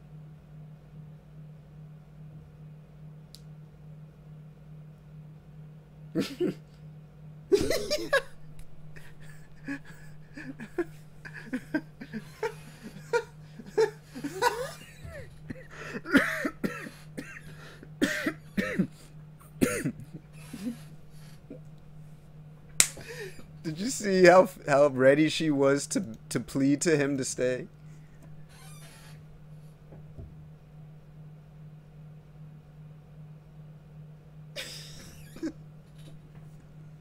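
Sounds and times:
steady low hum: 0.0 - 37.0
man laughing: 6.2 - 6.7, 7.5 - 21.7, 23.0 - 24.4, 34.6 - 35.6.

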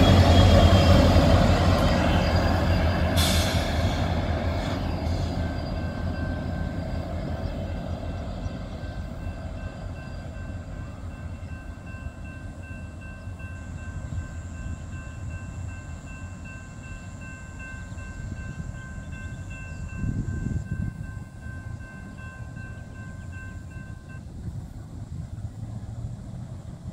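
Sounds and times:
freight train rumbling past: 0.0 - 26.9.

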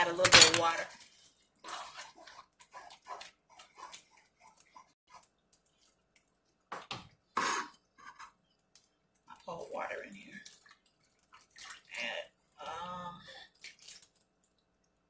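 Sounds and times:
wooden spoon stirring thick sauce: 0.8 - 9.5, 10.4 - 11.6.

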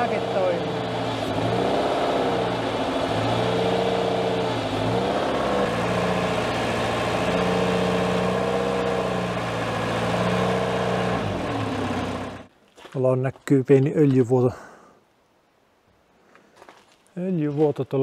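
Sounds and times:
loader engine under load: 0.0 - 12.5.

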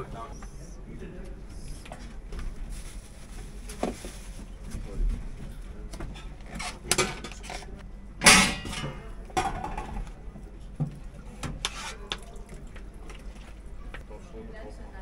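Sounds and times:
loud kitchen clatter: 6.0 - 10.2.

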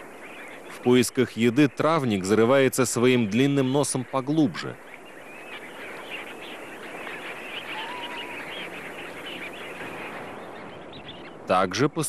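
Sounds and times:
flock of waterbirds calling: 0.0 - 12.0
wavering bird whistle: 7.5 - 9.4.

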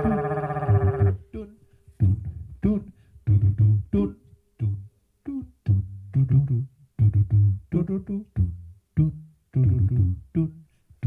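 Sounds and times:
man making wordless vocal sounds: 0.0 - 10.7.

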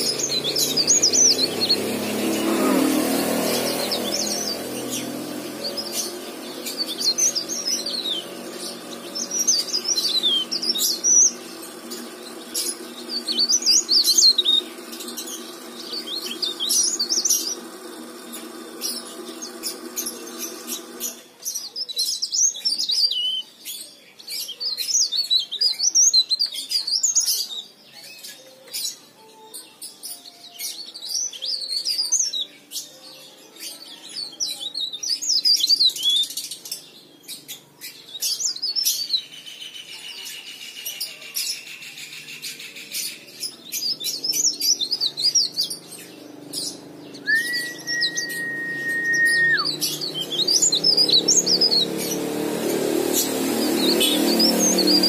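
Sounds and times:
bird warbling: 44.5 - 51.8.

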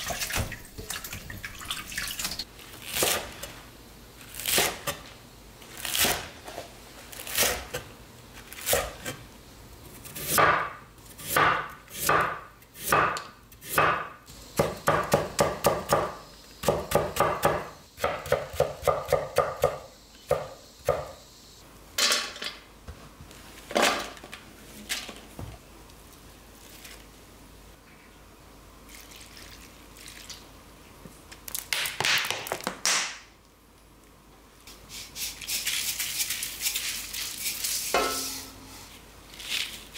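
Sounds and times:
knife chopping on wooden board: 10.2 - 21.1.

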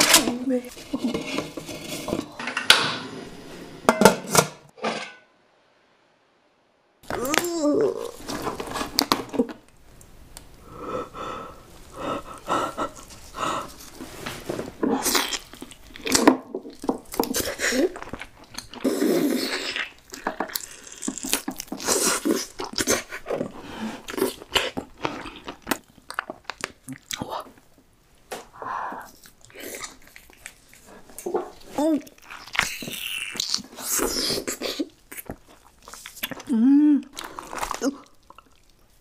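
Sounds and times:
chewing: 15.0 - 27.6, 29.1 - 39.0
person humming: 36.5 - 37.2.

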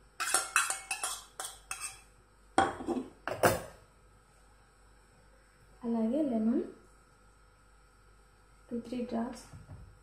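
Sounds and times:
steel spoon scraping bowl: 0.2 - 2.1
steel plate and bowl clinking: 0.2 - 3.7.

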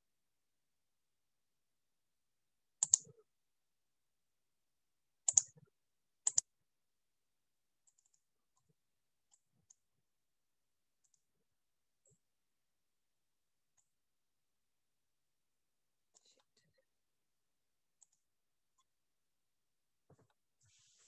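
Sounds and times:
computer mouse clicking: 2.8 - 3.2, 5.3 - 5.6, 6.2 - 6.5, 18.0 - 18.2.

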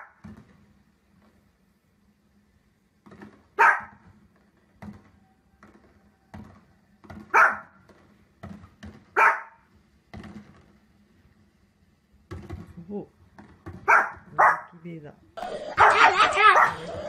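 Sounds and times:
small dog barking: 3.6 - 4.0, 7.3 - 7.7, 9.2 - 9.6, 13.9 - 14.8, 15.7 - 17.0.

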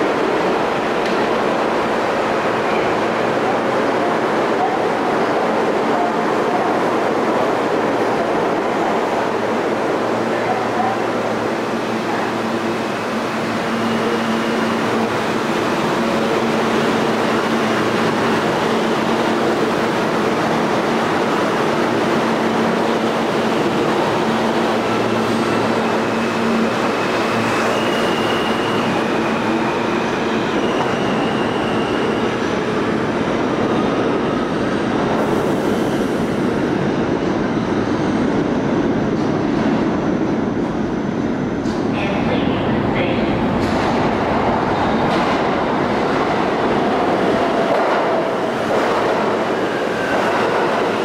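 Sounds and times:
approaching train rumble in tunnel: 0.0 - 51.0
subway train wheels rumbling on rail: 0.0 - 51.0.

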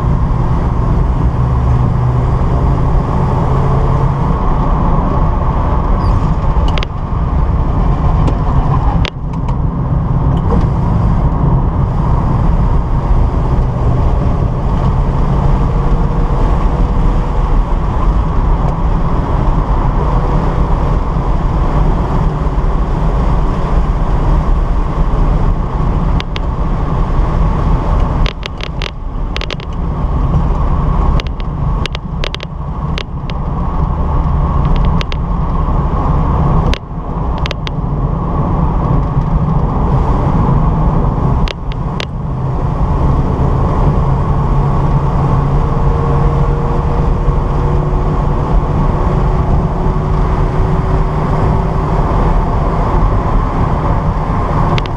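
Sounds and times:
car engine running hard: 0.0 - 54.9
wind noise: 0.0 - 54.9
sharp clicks: 26.2 - 26.5, 28.0 - 29.8, 31.2 - 33.4, 34.6 - 35.2, 36.6 - 37.8.

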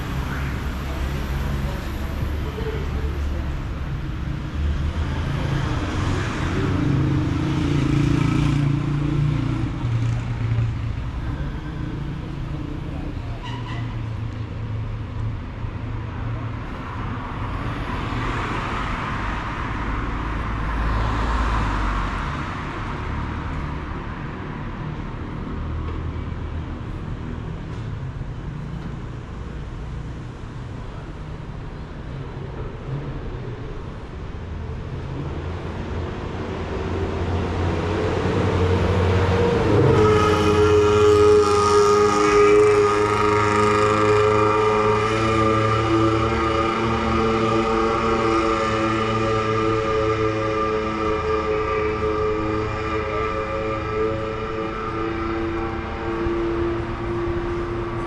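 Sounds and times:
road noise: 0.0 - 58.0
car passing: 16.3 - 26.5, 32.7 - 58.0.

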